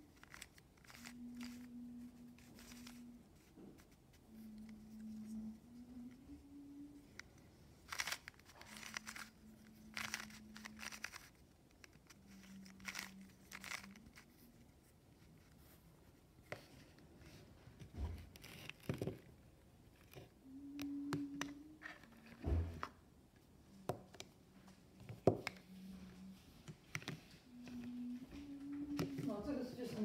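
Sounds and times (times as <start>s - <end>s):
puzzle cube clicking: 0.1s - 3.5s, 4.3s - 14.6s.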